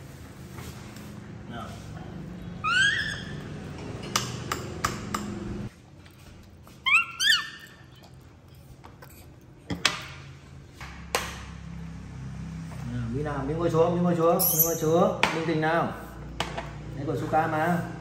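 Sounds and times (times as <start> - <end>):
baby monkey calling: 2.6 - 3.6, 6.8 - 8.1, 14.4 - 14.9.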